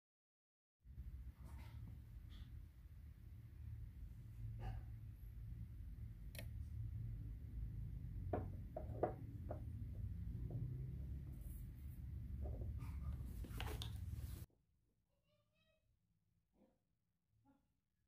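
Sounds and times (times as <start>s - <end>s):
steady low hum: 0.9s - 14.5s.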